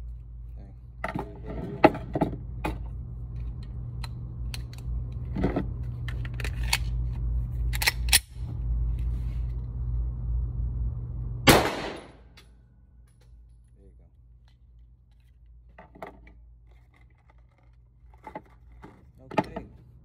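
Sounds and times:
low hum: 0.0s - 20.0s
metallic clicks of pistol handling: 7.7s - 8.4s
gunshot: 11.5s - 12.2s.

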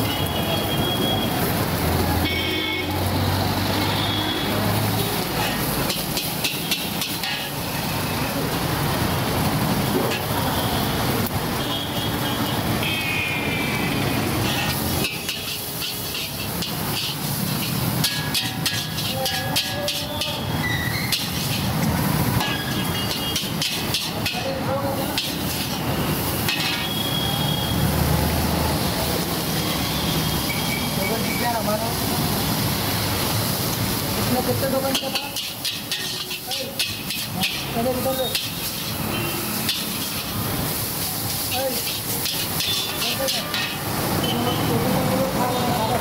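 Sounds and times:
food sizzling: 0.0s - 46.0s
metal spatula scraping a wok: 5.3s - 7.6s, 14.3s - 27.0s, 34.6s - 44.4s.

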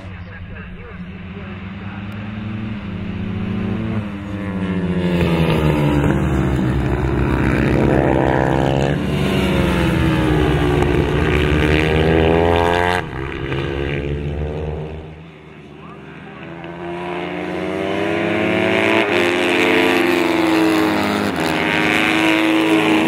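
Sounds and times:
race bike engines revving: 0.0s - 23.0s.

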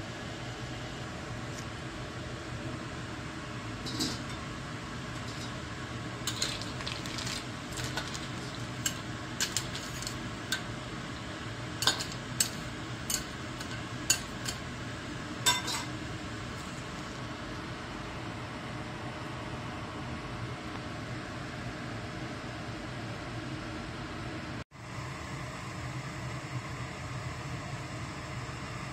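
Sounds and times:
boiling water hiss: 0.0s - 17.5s.

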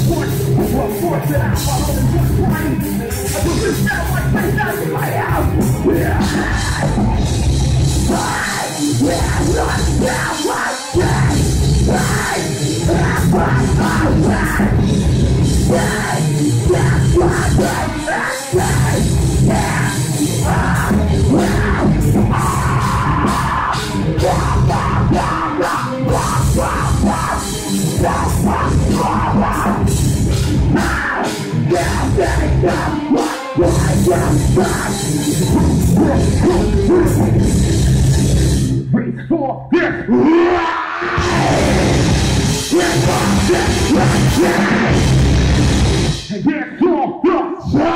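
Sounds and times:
drum kit: 0.0s - 38.9s, 41.1s - 46.4s
bass guitar: 0.0s - 46.5s, 47.6s - 47.9s
distorted electric guitars: 0.0s - 47.9s
shouted vocal: 15.7s - 29.9s, 40.0s - 45.1s.

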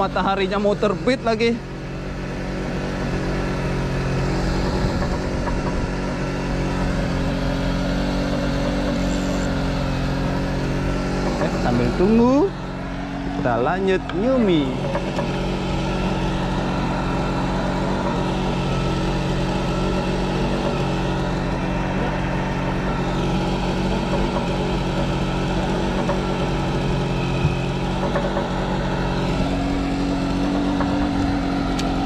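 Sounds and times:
boat engine humming: 0.0s - 32.0s.

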